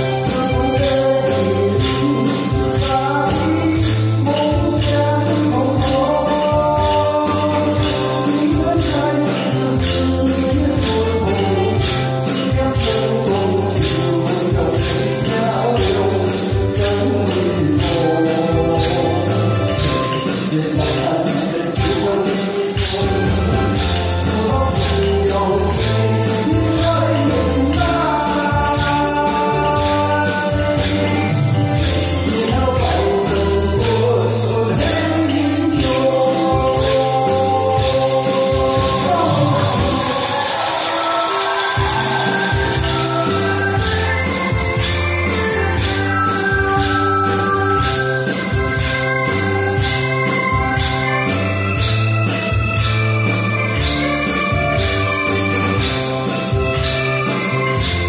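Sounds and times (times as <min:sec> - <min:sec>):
man singing into a microphone: 0:00.0 - 0:52.9
amplified backing music: 0:00.0 - 0:58.0
jingling tambourine: 0:00.0 - 0:58.0
song with steady beat: 0:00.0 - 0:58.0.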